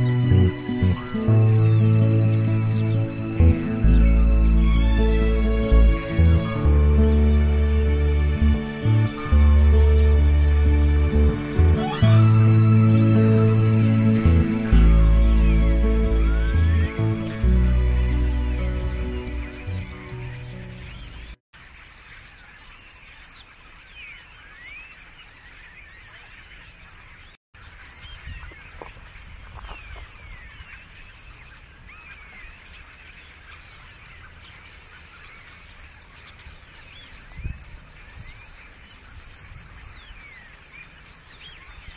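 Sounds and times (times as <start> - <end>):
starlings chattering: 0.0 - 25.8.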